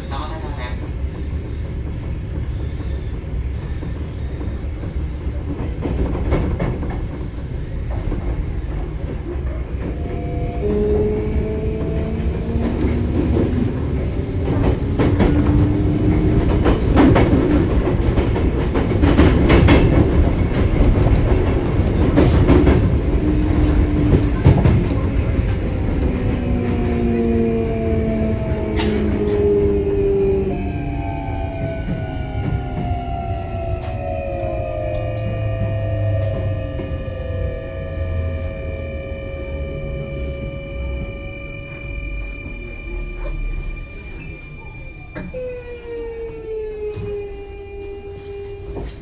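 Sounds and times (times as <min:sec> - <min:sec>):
train low rumble: 0:00.0 - 0:49.0
wheels clacking over rail joints: 0:11.6 - 0:37.1
traction motor whine rising: 0:25.6 - 0:43.6.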